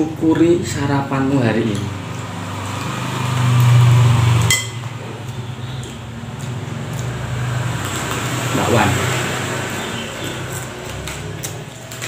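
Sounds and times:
metal spoon clinking on plate: 4.5 - 4.9.

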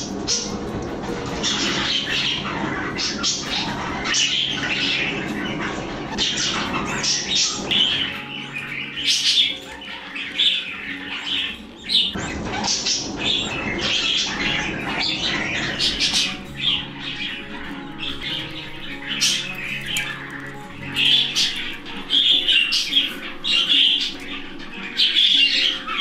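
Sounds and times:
budgerigars chattering and chirping: 0.0 - 26.0.

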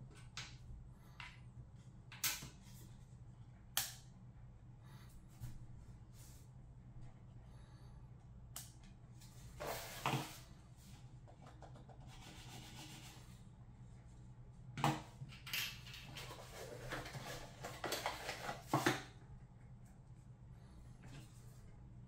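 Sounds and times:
packaging rustling and scraping: 16.1 - 19.0.

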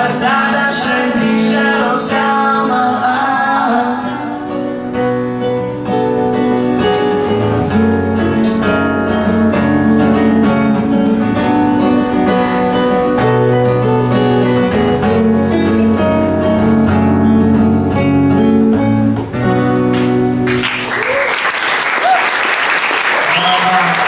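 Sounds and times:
man and woman singing: 0.0 - 4.6
acoustic guitars strummed: 0.0 - 20.9.

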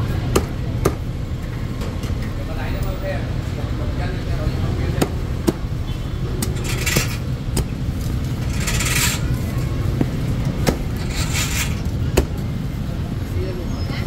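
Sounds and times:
traffic rumble: 0.0 - 14.0
short scraping sounds: 6.4 - 7.4, 8.2 - 9.6, 10.9 - 11.9
metal utensils and dishes clinking: 6.4 - 9.7, 10.9 - 12.0.

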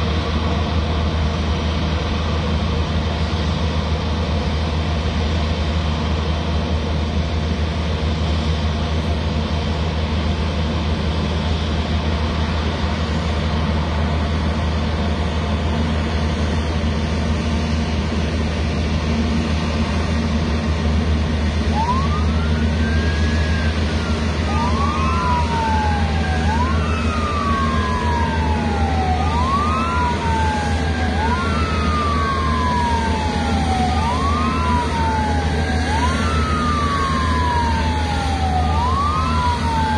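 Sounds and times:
jet engines rumbling: 0.0 - 39.9
fire truck sirens wailing: 8.6 - 39.9.

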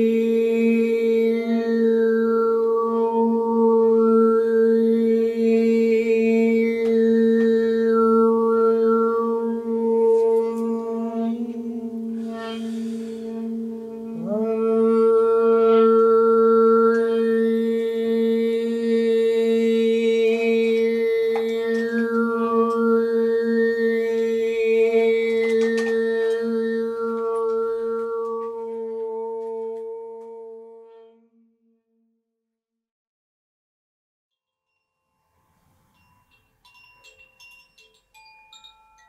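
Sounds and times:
man humming: 0.0 - 30.9
singing bowl ringing drone: 0.0 - 31.2.

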